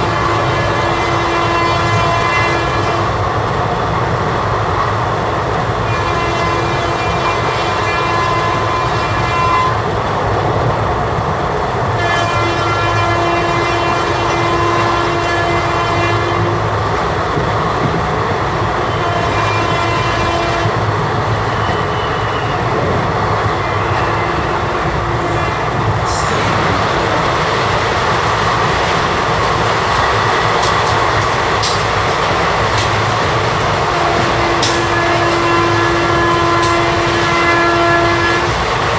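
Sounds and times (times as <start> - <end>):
locomotive horn blasts: 0.0 - 3.2, 5.8 - 9.9, 12.0 - 16.7, 18.8 - 22.8, 23.6 - 26.7, 33.6 - 38.7
train coach running noise: 0.0 - 38.9
rail-joint clicks: 24.8 - 38.9.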